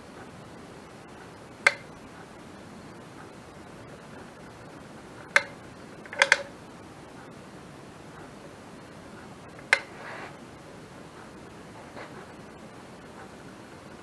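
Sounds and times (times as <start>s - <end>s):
steady low hiss: 0.0s - 14.0s
caulking gun clicking: 1.6s - 1.9s, 5.4s - 6.5s.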